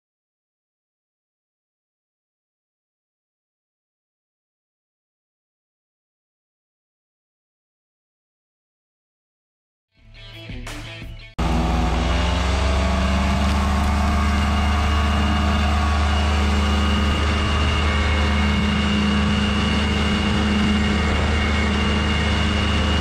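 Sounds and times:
paramotor engine and propeller drone: 11.4 - 23.0.

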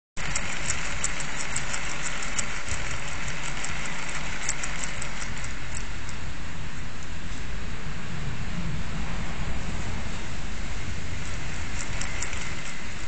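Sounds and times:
light rapid ticking: 0.2 - 6.3, 11.2 - 13.0
strong wind rushing at window: 5.6 - 13.0.

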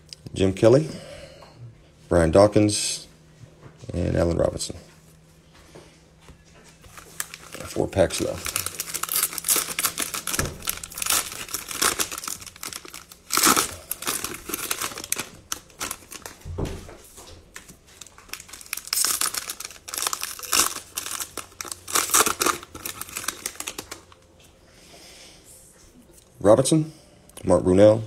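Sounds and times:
plastic wrappers tearing and crinkling: 6.8 - 16.5, 17.5 - 24.2.

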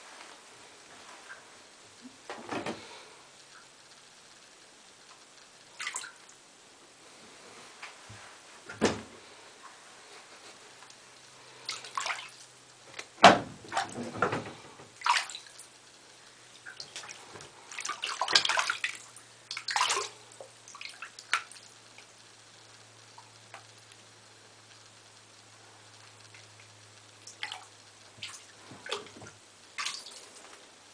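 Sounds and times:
cat paw splashing bathtub water: 5.8 - 6.2, 11.7 - 15.7, 16.5 - 22.1, 27.3 - 30.3.

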